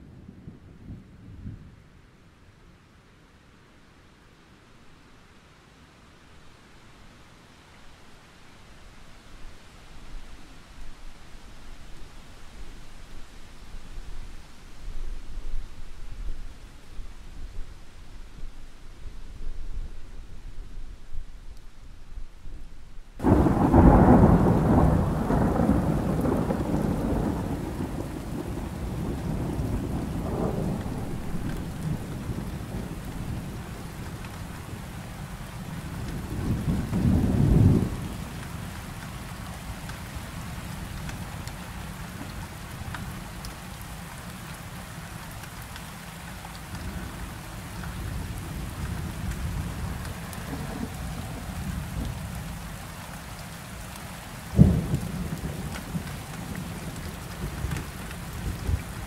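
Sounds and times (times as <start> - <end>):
rain falling: 0.0 - 59.0
thunder rumbling: 23.2 - 39.8, 46.8 - 52.7, 54.5 - 59.0.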